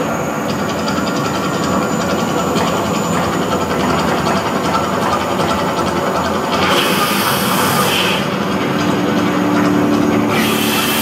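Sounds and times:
gas flames rumbling: 0.0s - 11.0s
fast rattling clatter: 0.4s - 11.0s.

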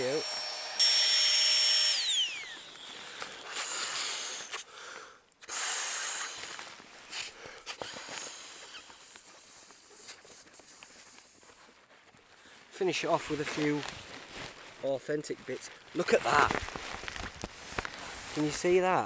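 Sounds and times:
air pump whine spinning down: 0.0s - 4.6s
breaths blown into valve: 3.0s - 4.7s, 5.4s - 8.9s.

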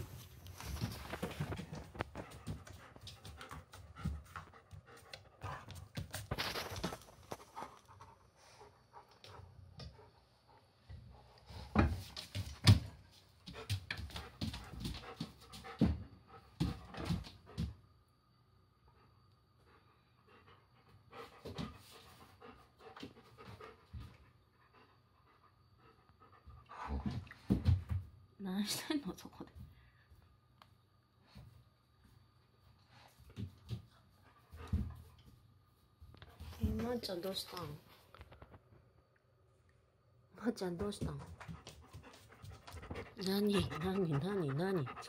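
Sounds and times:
dog panting: 0.6s - 12.1s, 13.4s - 17.8s, 19.0s - 27.3s, 33.1s - 35.4s, 41.2s - 45.0s.

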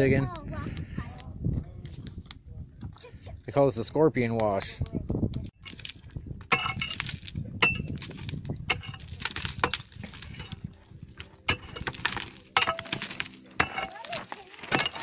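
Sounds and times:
pick striking rocky gravel: 5.6s - 15.0s
rock and dirt clattering down: 5.6s - 15.0s.

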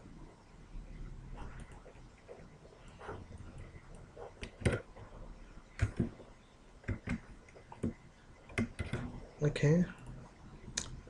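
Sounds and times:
mouse and keyboard clicks: 6.8s - 9.1s.

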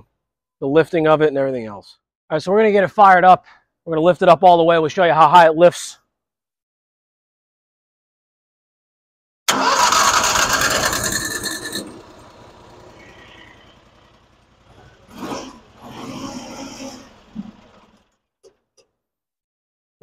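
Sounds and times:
engine starter cranking: 9.5s - 18.2s.

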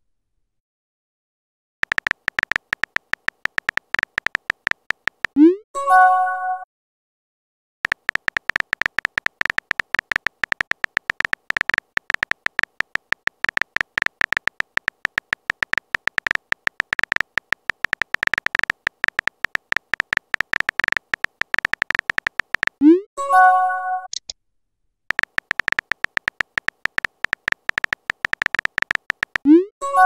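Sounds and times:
phone keyboard tap clicks: 1.8s - 5.4s, 7.9s - 22.8s, 25.1s - 29.5s.

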